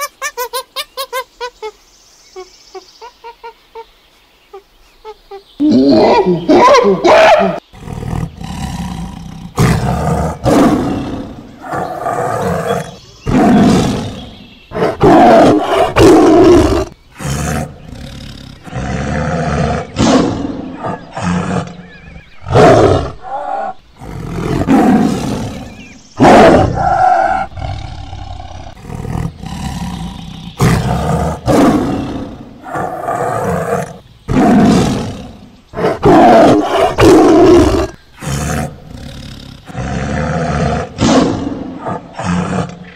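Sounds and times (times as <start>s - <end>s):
tiger roaring: 6.8s - 42.9s.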